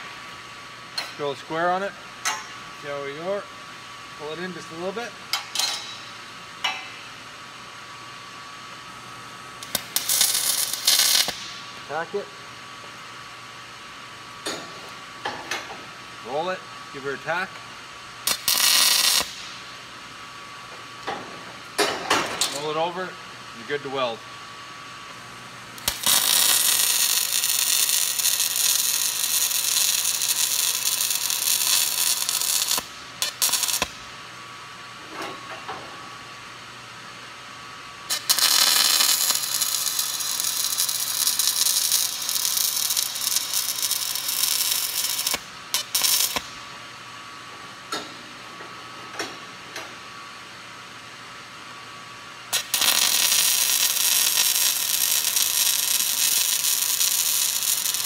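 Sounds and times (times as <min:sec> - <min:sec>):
welding arc crackling and hissing: 0:01.2 - 0:13.2, 0:14.2 - 0:24.2, 0:24.8 - 0:34.6, 0:37.9 - 0:46.9, 0:52.2 - 0:58.0.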